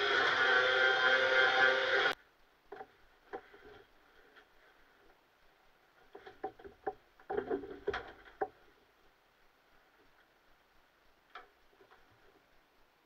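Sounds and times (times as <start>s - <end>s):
knocks and clicks in a hull: 6.0s - 8.7s.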